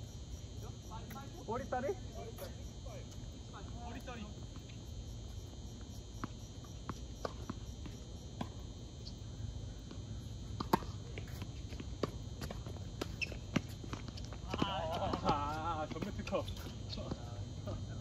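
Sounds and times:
night insects chirring: 0:00.0 - 0:18.0
tennis balls bouncing and struck: 0:06.1 - 0:09.2, 0:09.8 - 0:16.1.

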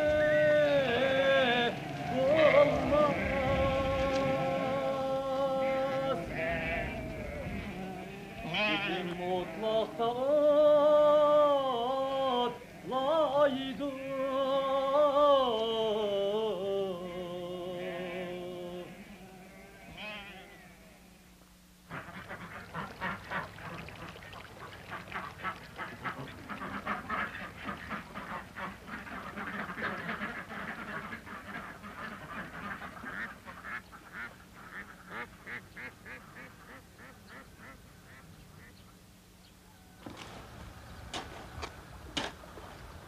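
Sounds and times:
ducks quacking: 0:00.0 - 0:10.6, 0:21.9 - 0:39.0.

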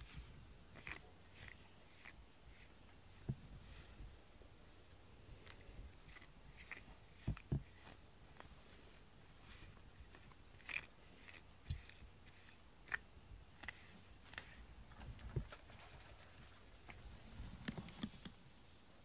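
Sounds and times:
brush stroking cat fur: 0:00.0 - 0:04.0, 0:05.3 - 0:14.6.

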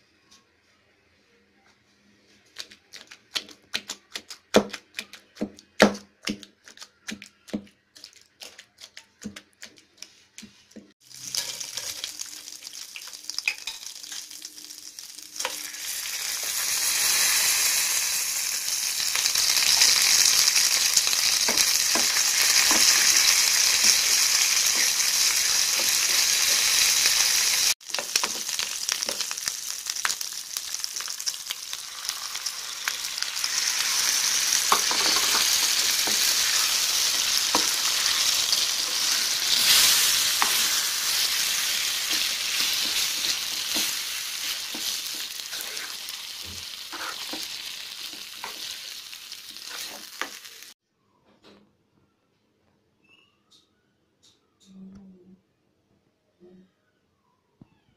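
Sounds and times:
hot oil sizzling in a pan: 0:11.0 - 0:50.8.

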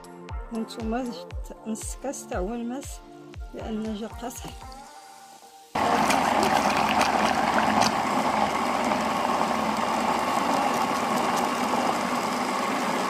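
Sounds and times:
electric blender running: 0:05.8 - 0:13.0.

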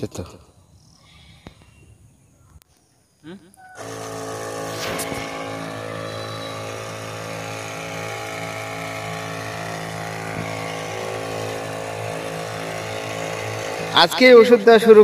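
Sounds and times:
sprayer motor humming: 0:03.8 - 0:15.0.

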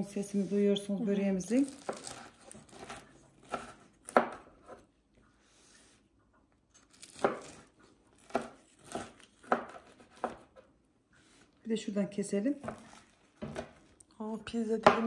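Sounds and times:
knife slicing crunchy crust: 0:01.5 - 0:04.8, 0:06.7 - 0:10.6.

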